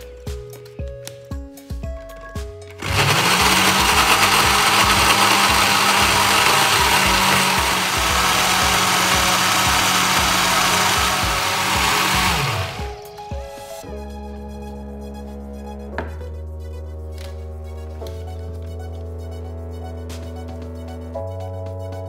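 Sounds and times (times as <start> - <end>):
blender motor grinding: 2.8 - 13.0.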